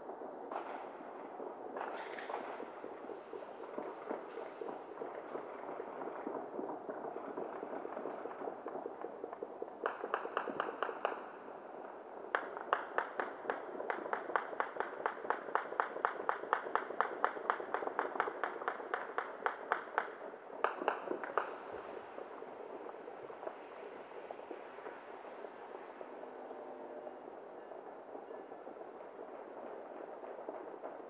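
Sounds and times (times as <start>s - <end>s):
distant firework crackle: 0.0s - 31.0s
sharp firework pops: 0.5s - 11.4s, 12.3s - 25.7s.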